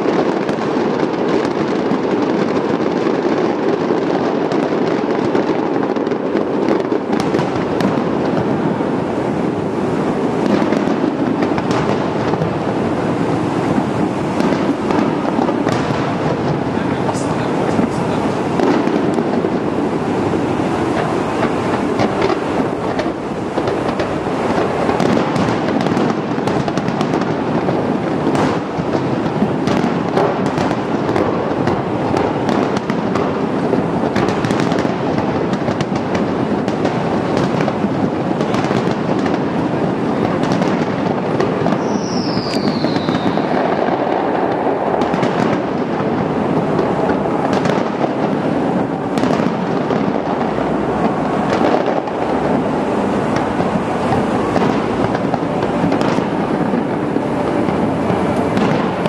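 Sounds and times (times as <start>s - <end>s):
continuous rumble: 0.0s - 59.0s
firework shells bursting: 0.0s - 59.0s
falling firework whistle: 40.2s - 48.2s.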